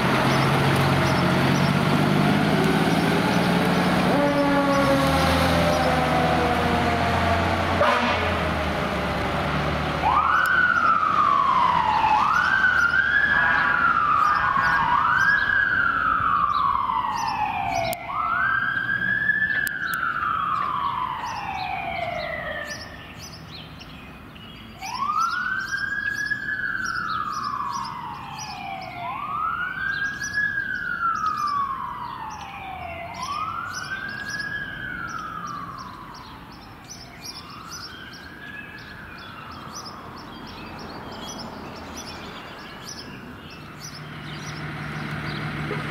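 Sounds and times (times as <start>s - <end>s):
truck engine rumbling: 0.0s - 20.4s, 40.8s - 45.9s
fire engine siren wailing: 0.0s - 23.0s, 24.8s - 40.5s
horn-like tones: 4.1s - 5.2s, 7.7s - 8.5s.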